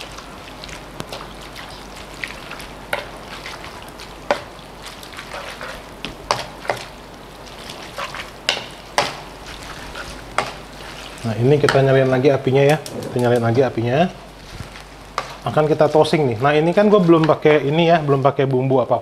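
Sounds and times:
wet stirring of pasta: 0:00.0 - 0:17.6
spatula knocking and scraping pan: 0:04.3 - 0:04.5, 0:05.2 - 0:06.9, 0:07.6 - 0:12.0, 0:15.1 - 0:15.4.

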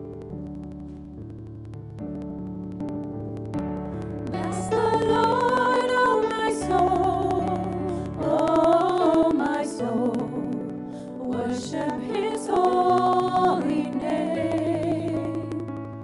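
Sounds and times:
keyboard accompaniment: 0:00.0 - 0:16.0
women singing together: 0:04.3 - 0:15.9.

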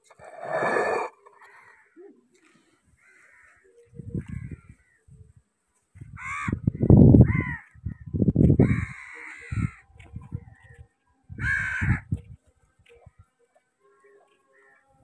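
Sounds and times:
crows cawing: 0:00.6 - 0:02.1, 0:02.9 - 0:05.1, 0:06.2 - 0:07.8, 0:08.6 - 0:09.9, 0:11.4 - 0:12.1.

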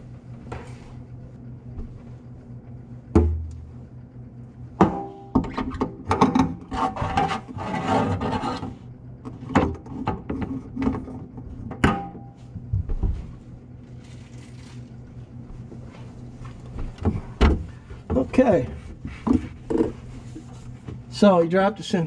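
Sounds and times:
pipe scraping and rubbing: 0:05.5 - 0:08.9, 0:17.2 - 0:21.0.

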